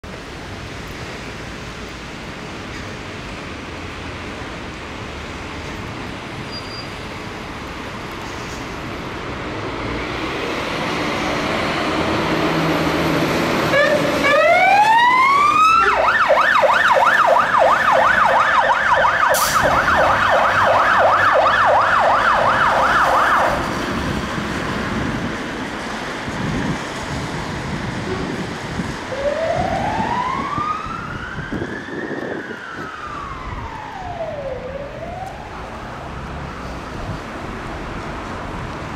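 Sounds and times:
traffic noise: 0:00.0 - 0:38.9
fire engine siren: 0:10.7 - 0:24.2, 0:28.1 - 0:36.6
faint siren wail: 0:12.4 - 0:23.8, 0:29.0 - 0:36.6.

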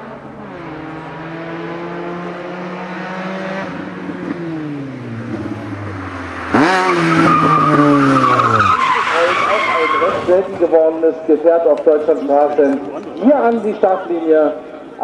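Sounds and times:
race car engine revving: 0:00.0 - 0:10.6
tyres squealing: 0:06.6 - 0:10.5.

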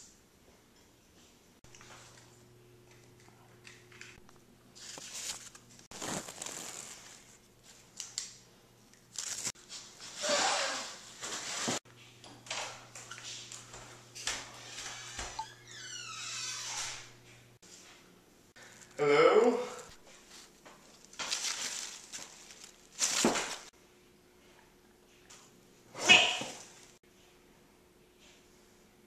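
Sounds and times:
leaves rustling against microphone: 0:04.8 - 0:07.4, 0:20.2 - 0:23.7.

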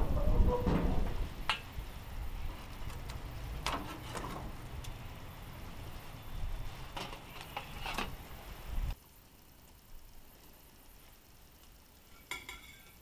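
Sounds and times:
low steady rumble: 0:00.0 - 0:12.1
spatula and tongs scraping grill: 0:02.5 - 0:04.9, 0:06.7 - 0:08.2.

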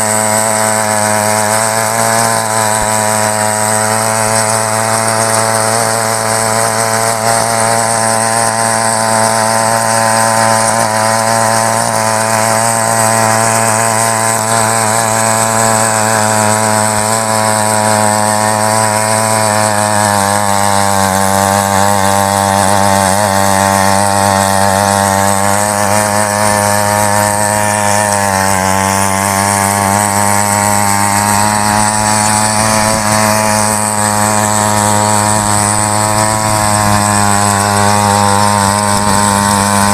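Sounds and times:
rotary tines churning soil: 0:00.0 - 0:39.9
small petrol engine running: 0:00.0 - 0:39.9.

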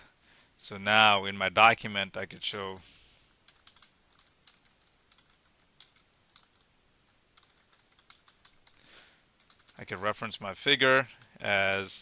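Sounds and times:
typing on keyboard: 0:03.5 - 0:08.8, 0:09.4 - 0:10.2.

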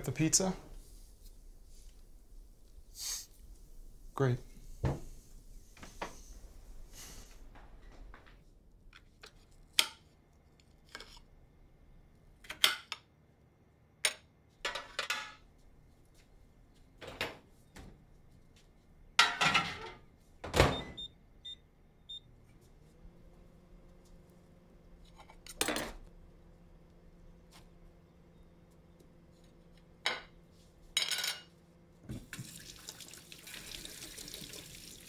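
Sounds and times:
plates and dishes clattering: 0:14.7 - 0:15.4, 0:19.2 - 0:20.0, 0:31.0 - 0:31.5
microwave humming: 0:19.3 - 0:35.0
microwave keypad beeps: 0:20.6 - 0:22.3.

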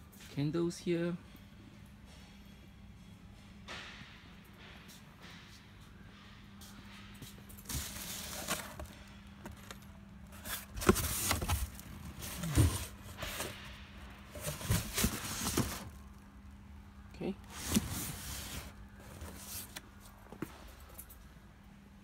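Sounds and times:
faint steady hum: 0:00.0 - 0:22.0
cardboard rustling and scraping: 0:07.6 - 0:16.0, 0:17.5 - 0:20.2.

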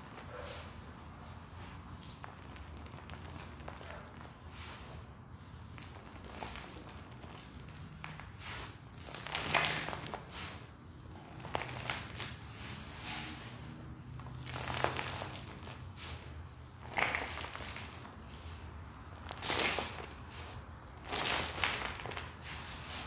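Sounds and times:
powder crunching and sifting: 0:01.4 - 0:23.0.

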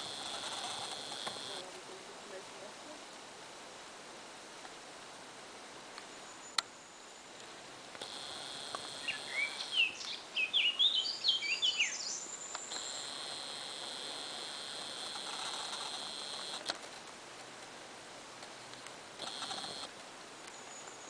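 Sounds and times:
steady high-pitched buzz: 0:00.0 - 0:01.8, 0:08.0 - 0:10.0, 0:12.7 - 0:16.7, 0:19.0 - 0:19.9
songbird singing: 0:06.0 - 0:16.6, 0:19.2 - 0:21.0.

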